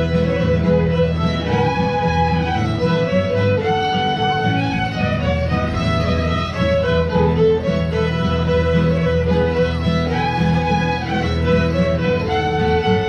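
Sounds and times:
fiddles playing a dance tune: 0.0s - 13.0s.

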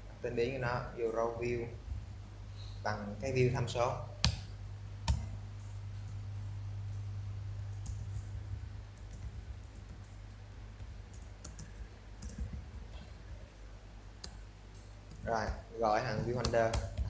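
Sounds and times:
steady low hum: 0.0s - 17.0s
computer keyboard keys clicking: 7.7s - 8.3s, 8.9s - 13.1s.

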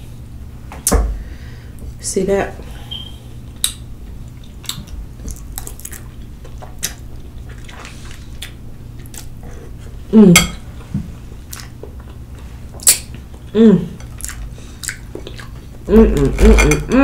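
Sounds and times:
chewing: 3.5s - 9.5s, 11.4s - 16.4s.

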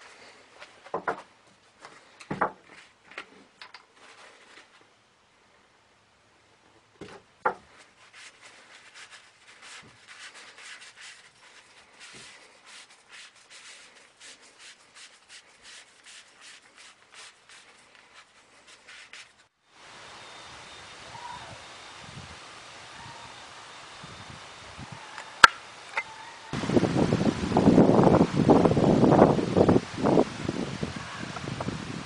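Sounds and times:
cloth rag rubbing wood: 7.7s - 19.6s.

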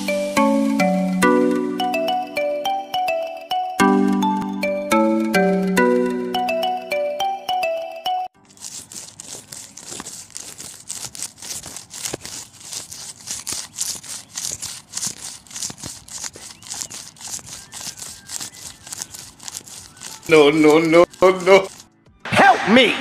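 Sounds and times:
small saw rasping on wood: 8.4s - 21.9s.

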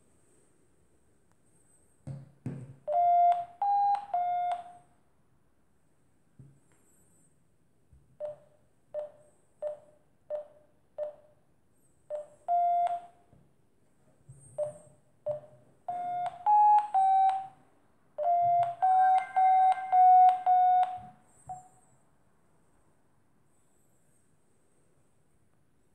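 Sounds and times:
electronic beeps: 18.2s - 21.8s.

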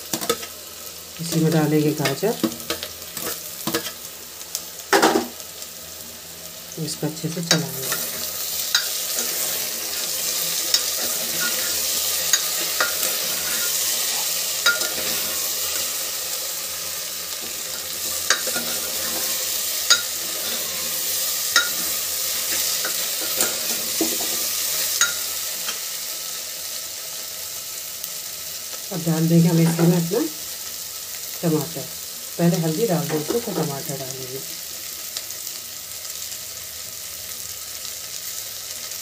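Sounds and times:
vegetables sizzling in oil: 0.0s - 39.0s
metal utensil clinking on pot: 14.6s - 15.2s, 19.9s - 20.2s, 21.6s - 21.9s.

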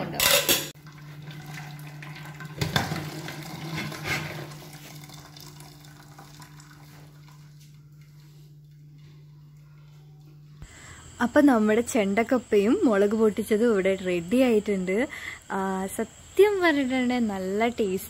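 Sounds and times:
water pouring from pot: 0.8s - 7.5s
low hum: 6.0s - 15.4s.

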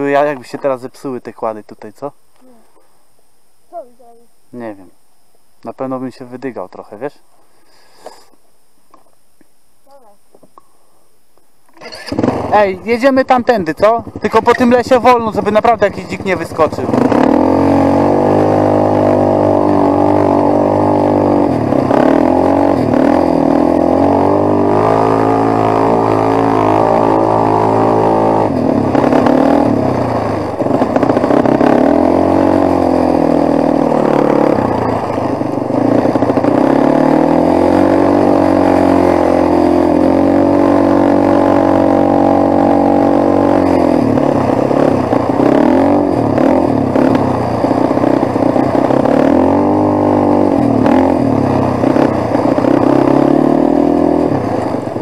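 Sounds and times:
quad engine running: 11.7s - 55.0s.

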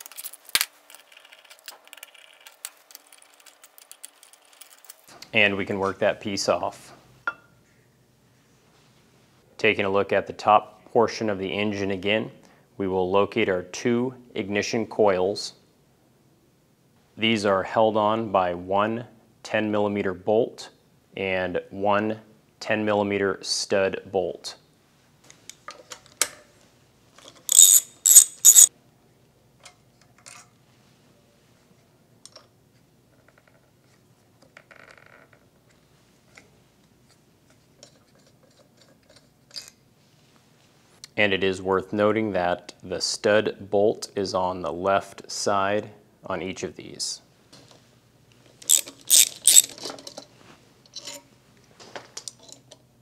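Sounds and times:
hand ratchet ratcheting: 27.5s - 28.7s, 48.6s - 49.9s.

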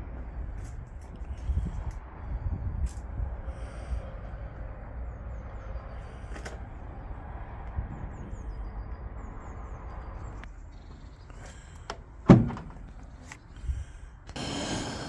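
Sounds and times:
steady low rumble: 0.0s - 10.5s.

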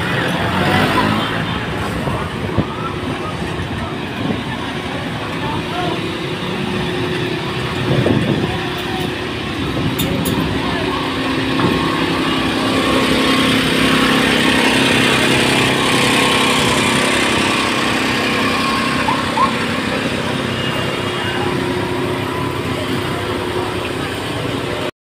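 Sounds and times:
road traffic: 0.0s - 25.0s
vehicle engine humming: 0.0s - 25.0s.

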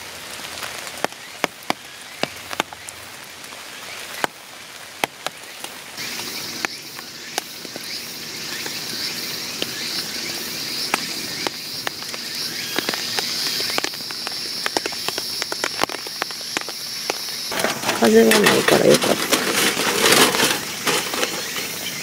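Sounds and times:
rain drops tapping on a tarp: 0.0s - 22.0s
soft rain hiss: 0.0s - 22.0s
high insect drone: 6.0s - 22.0s.

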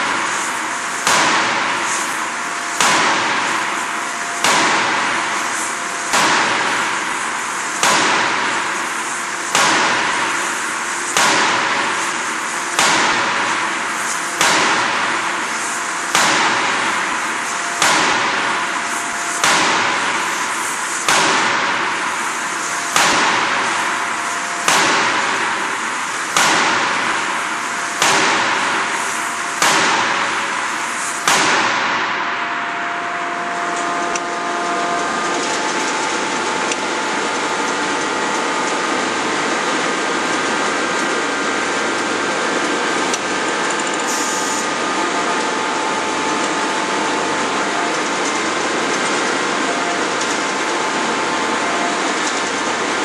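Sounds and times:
steady machine hum: 0.0s - 53.0s
forging hammer banging: 1.0s - 1.8s, 2.8s - 3.6s, 4.4s - 5.3s, 6.0s - 7.0s, 7.8s - 8.5s, 14.4s - 15.0s, 16.1s - 16.8s, 17.8s - 18.7s, 19.3s - 20.2s, 21.1s - 21.8s, 22.9s - 23.6s, 24.6s - 25.5s, 26.3s - 27.2s, 28.0s - 28.7s, 29.6s - 30.4s, 31.2s - 32.1s.

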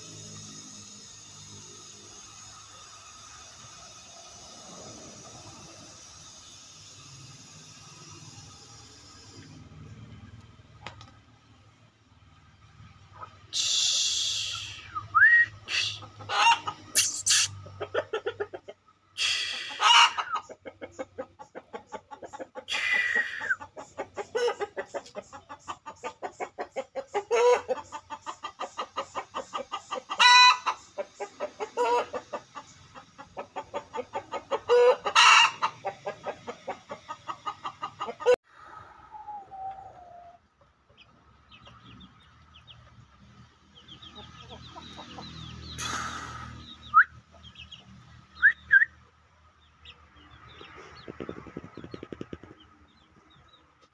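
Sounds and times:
chickens clucking: 0.0s - 53.9s
loud chicken calls: 13.1s - 32.6s, 33.2s - 40.5s.

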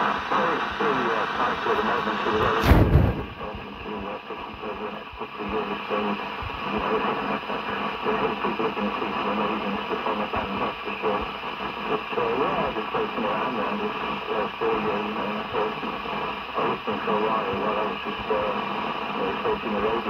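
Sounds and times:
faint garbled voice: 0.0s - 20.0s
radio hiss and crackle: 0.0s - 20.0s
loud pop: 2.4s - 3.4s.

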